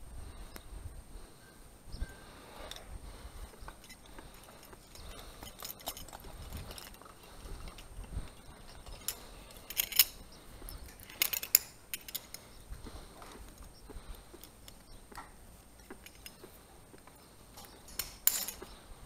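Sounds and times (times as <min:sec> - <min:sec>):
bursts of sharp clinks: 0:02.6 - 0:12.6
metal hardware clinking and rattling: 0:02.6 - 0:12.6, 0:15.7 - 0:16.5, 0:17.6 - 0:18.8.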